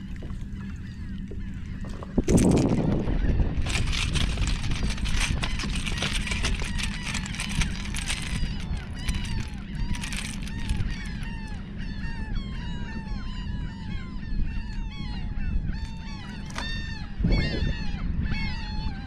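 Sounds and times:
birds calling: 0:00.0 - 0:19.0
wind noise: 0:00.0 - 0:19.0
brief rustle: 0:03.6 - 0:11.3.

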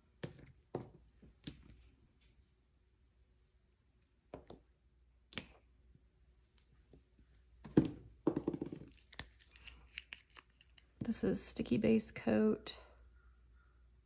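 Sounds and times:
polish bottle being opened: 0:08.9 - 0:10.9.

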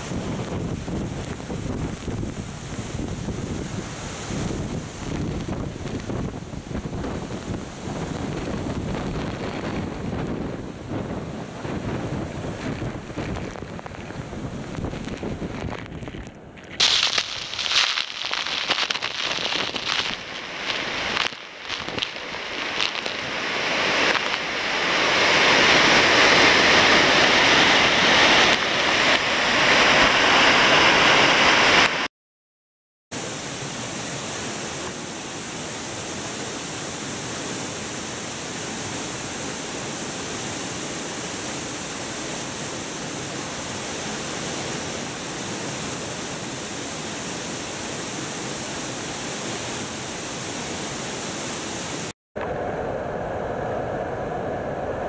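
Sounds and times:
waterfall rushing: 0:16.8 - 0:32.0.

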